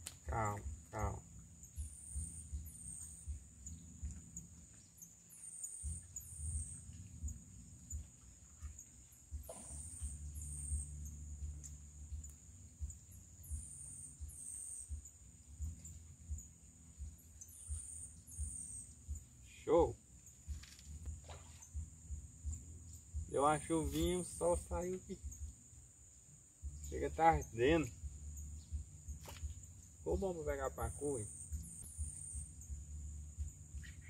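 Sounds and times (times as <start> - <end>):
high insect drone: 0.0 - 34.0
uneven low rumble: 5.6 - 19.5, 20.2 - 34.0.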